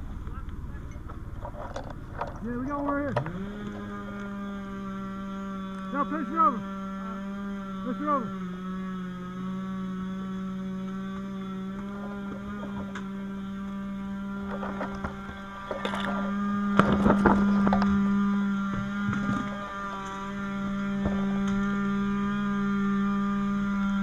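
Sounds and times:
steady engine drone: 0.0s - 24.0s.

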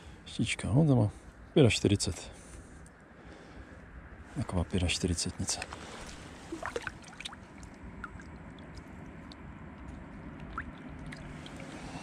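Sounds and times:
river water gurgling: 5.5s - 12.0s.

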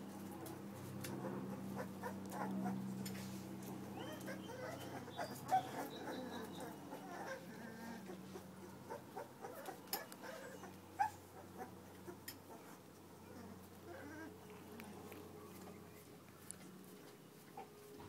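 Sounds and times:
puppies whimpering: 3.7s - 14.7s.

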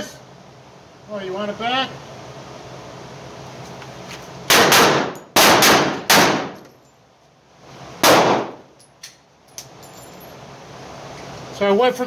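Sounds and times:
pistol shots ringing indoors: 4.5s - 6.6s, 8.0s - 8.7s.

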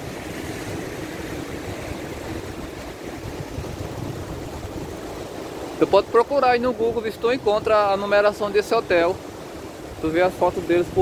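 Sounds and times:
wind rush on microphone: 0.0s - 11.0s.

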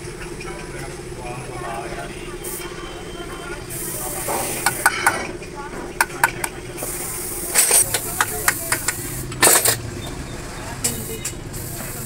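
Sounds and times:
hissy scrape: 3.7s - 5.0s
metal tools clinking: 7.5s - 9.8s.

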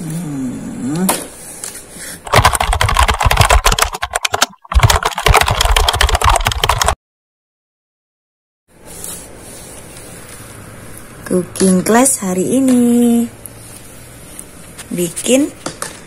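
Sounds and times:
keyboard typing clicks: 2.3s - 7.0s.

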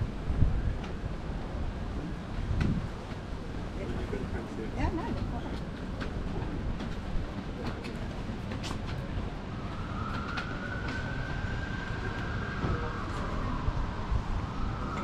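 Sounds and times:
low city rumble: 0.0s - 15.0s
faint high siren tone: 9.3s - 15.0s.

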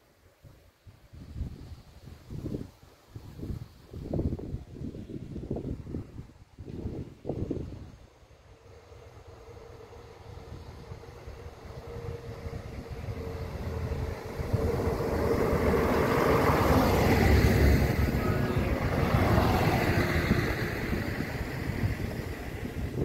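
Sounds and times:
train passing: 6.8s - 23.0s.

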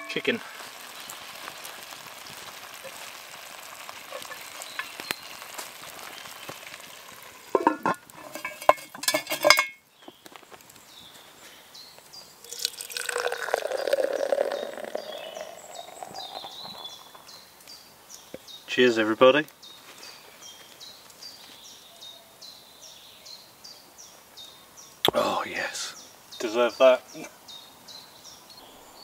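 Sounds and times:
food sizzling in a pot: 0.0s - 9.7s, 12.4s - 17.9s
drink pouring into a tankard: 12.5s - 17.3s.

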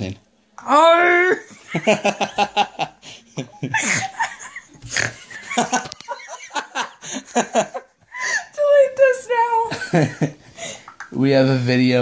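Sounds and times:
teenagers laughing and giggling: 1.5s - 8.2s.

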